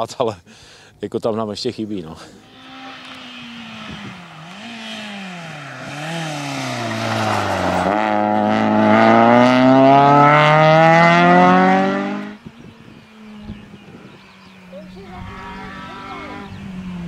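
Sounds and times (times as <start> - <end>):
rally car engine revving: 2.3 - 12.4.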